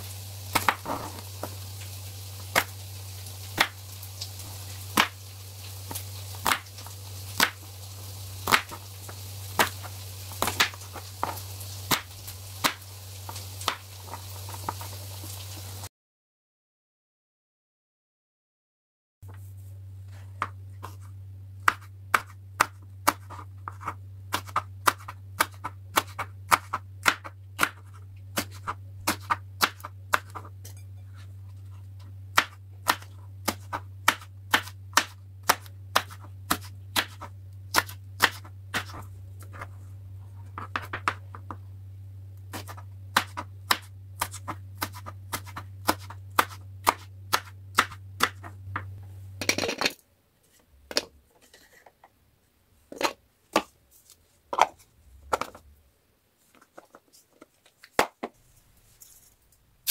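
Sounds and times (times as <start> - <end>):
knife chopping on cutting board: 0.5 - 1.6, 4.9 - 5.2, 6.4 - 6.6, 7.4 - 7.6, 8.5 - 8.8, 9.6 - 14.9, 21.6 - 30.5, 32.3 - 39.7, 42.5 - 49.0
steady low hum: 19.2 - 49.5.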